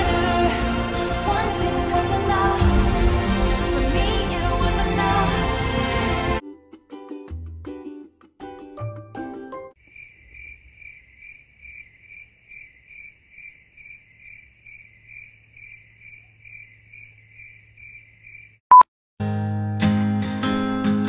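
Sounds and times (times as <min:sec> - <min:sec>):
cricket chirping: 0:09.8 - 0:18.6
acoustic guitar strumming: 0:19.2 - 0:21.0.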